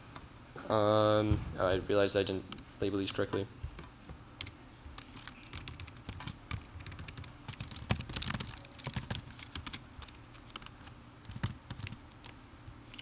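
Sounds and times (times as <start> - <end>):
typing on keyboard: 4.4 - 12.4.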